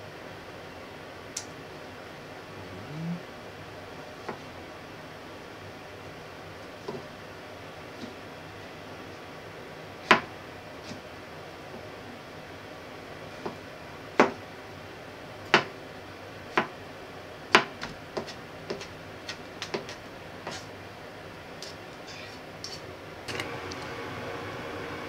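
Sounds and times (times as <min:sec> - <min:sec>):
knife chopping on plastic board: 0:17.6 - 0:20.6.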